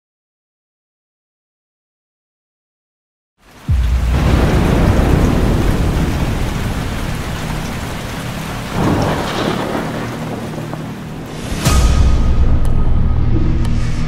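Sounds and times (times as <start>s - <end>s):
heavy rain: 3.4s - 13.3s
rolling thunder: 3.5s - 13.6s
thunder clap: 3.5s - 13.7s.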